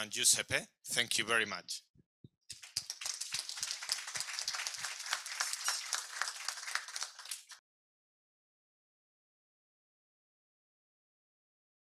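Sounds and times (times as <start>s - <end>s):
audience applauding: 2.5s - 7.6s.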